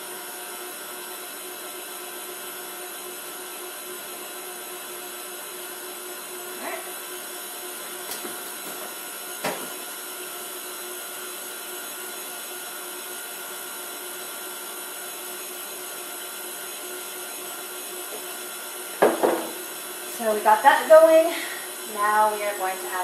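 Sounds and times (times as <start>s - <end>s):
stand mixer whisking: 0.0s - 20.6s, 21.4s - 21.9s
sharp knock: 19.0s - 19.6s.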